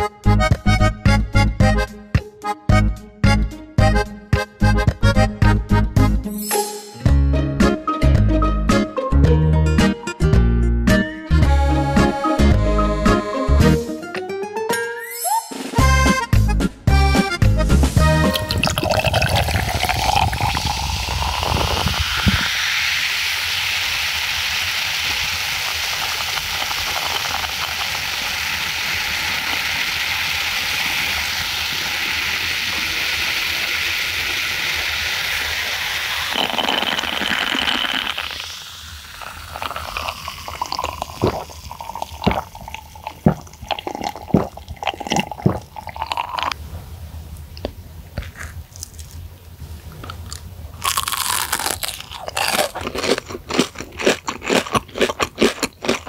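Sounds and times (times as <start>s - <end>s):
soda fizzing in a glass: 18.3s - 46.6s.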